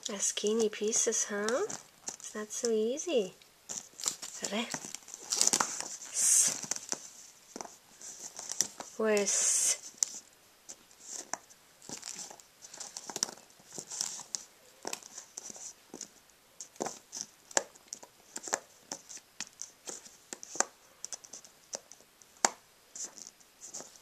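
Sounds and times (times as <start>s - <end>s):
puzzle pieces clicking on foam mat: 0.5s - 2.8s, 10.0s - 24.0s
cardboard scraping rustles: 3.7s - 16.1s.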